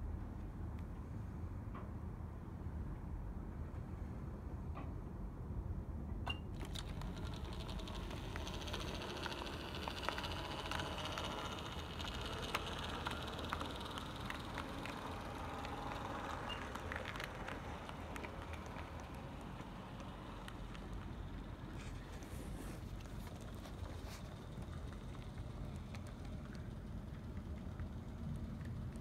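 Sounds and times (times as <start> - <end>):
wheels clicking over rail joints: 6.3 - 29.0
model train wheels rattling: 6.6 - 29.0.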